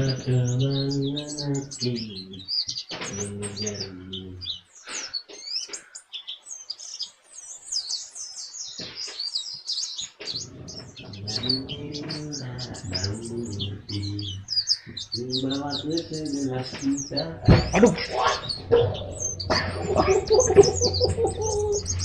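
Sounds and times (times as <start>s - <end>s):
low voice: 0.0s - 2.4s, 3.0s - 4.4s, 10.4s - 14.5s, 15.2s - 22.0s
bird chirping: 0.0s - 22.0s.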